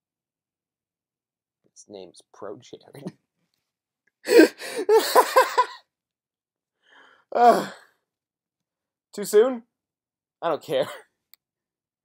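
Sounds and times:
man laughing hard: 4.3s - 5.8s.

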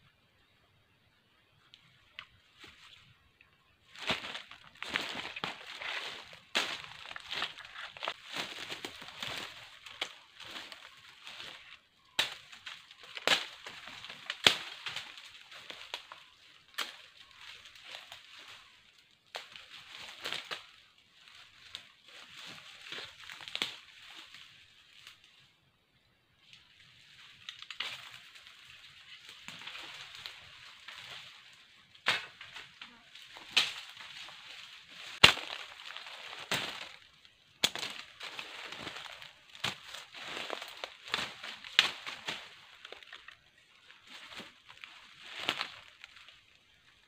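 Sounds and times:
footsteps crunching through dry leaves: 3.8s - 25.3s, 26.8s - 47.0s
sticks snapping: 12.2s - 18.5s, 27.4s - 28.3s, 32.0s - 32.7s, 33.3s - 43.4s.

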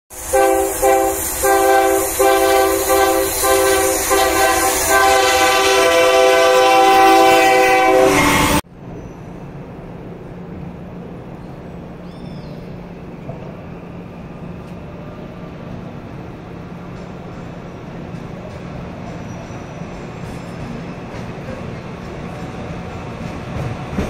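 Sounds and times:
train air horn blasts: 0.1s - 8.6s.

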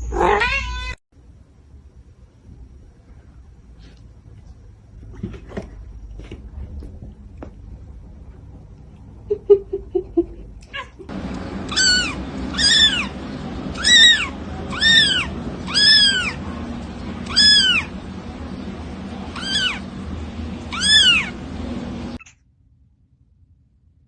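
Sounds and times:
kitten mewing: 11.7s - 13.1s, 13.8s - 16.4s, 17.2s - 17.9s, 19.3s - 19.8s, 20.7s - 21.3s.

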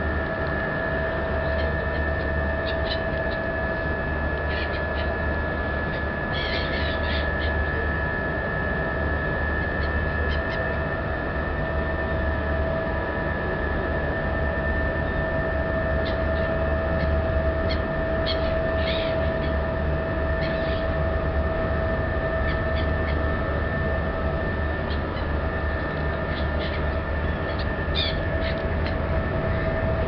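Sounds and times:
ship engines humming and whining: 0.0s - 30.0s
seagulls squawking: 17.7s - 19.6s, 20.4s - 20.8s, 27.5s - 29.7s.

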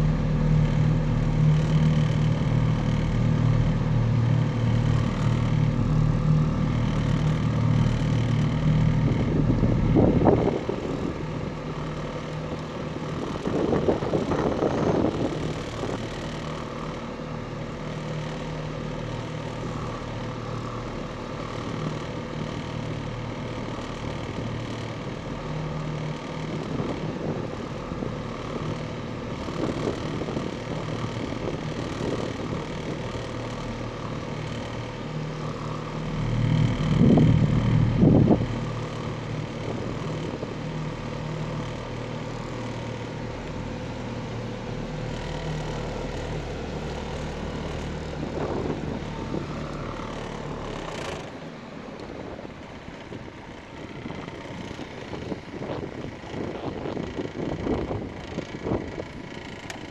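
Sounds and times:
motorboat engine running: 0.0s - 59.9s.

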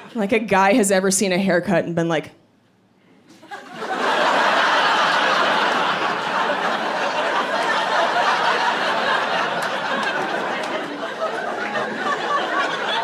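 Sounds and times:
large audience laughing: 3.3s - 13.0s.

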